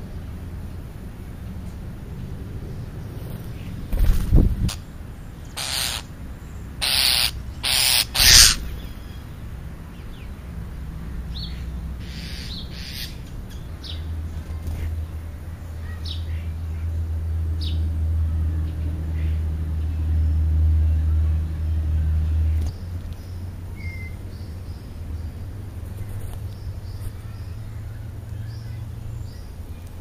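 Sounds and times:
small birds chirping: 0.0 - 30.0
vehicle engine hum: 0.0 - 30.0
loud rushing noises: 2.5 - 4.9.

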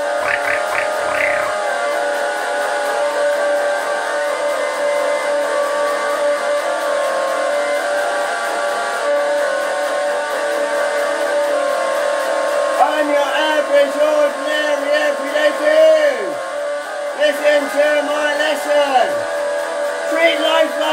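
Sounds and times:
electric guitar sustained chords: 0.0 - 2.0.

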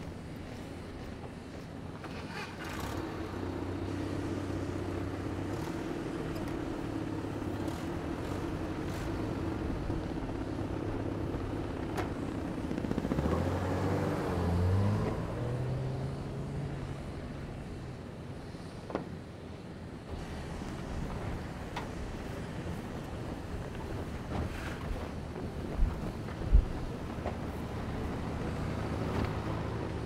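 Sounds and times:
vehicle engine revving: 13.1 - 16.6.

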